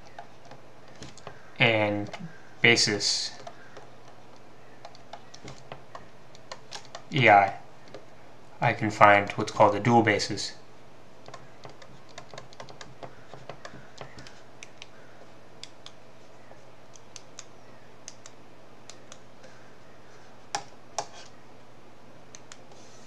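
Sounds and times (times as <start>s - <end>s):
faint steady hum: 0.0s - 23.0s
stylus tapping on tablet screen: 11.2s - 14.9s.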